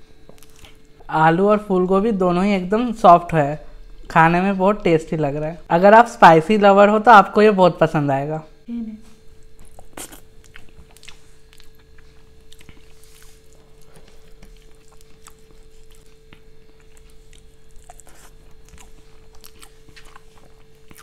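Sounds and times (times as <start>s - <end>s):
faint steady hum: 0.0s - 21.0s
chewing: 0.2s - 1.1s, 9.4s - 21.0s.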